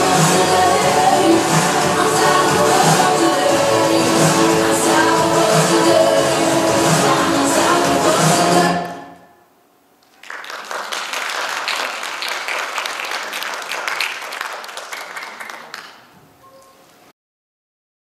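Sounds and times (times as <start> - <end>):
stage music: 0.0 - 9.4
audience applause: 10.0 - 16.1.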